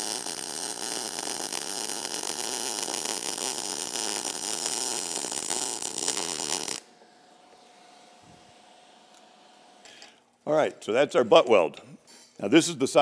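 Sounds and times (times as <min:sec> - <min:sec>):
welding arc crackling: 0:00.0 - 0:06.9.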